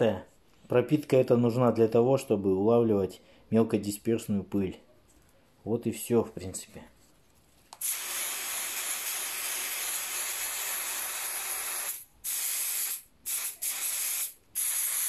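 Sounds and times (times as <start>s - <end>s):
aerosol can spraying: 7.8s - 15.0s.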